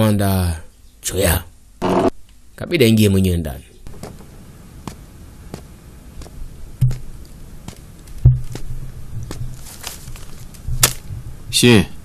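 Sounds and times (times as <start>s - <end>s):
low hum: 3.7s - 11.6s.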